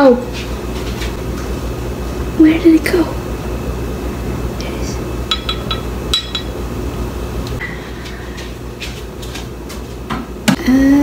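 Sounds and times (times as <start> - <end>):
steady low hum: 0.0 - 11.0
metal spoon clinking glass bowl: 5.3 - 6.5.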